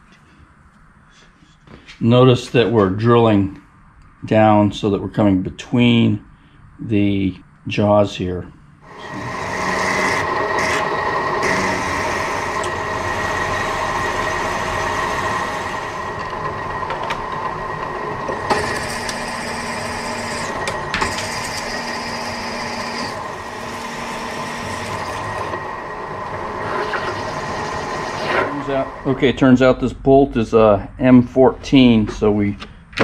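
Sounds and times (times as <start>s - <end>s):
drill boring into metal: 8.8s - 29.1s
milling machine spindle running: 8.8s - 29.2s.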